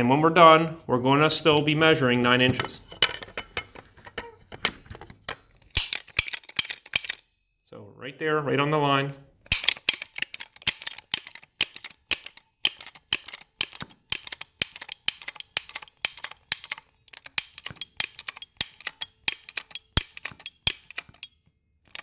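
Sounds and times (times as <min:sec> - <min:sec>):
tube bender ratchet clicks: 0:05.7 - 0:07.2, 0:09.5 - 0:22.0.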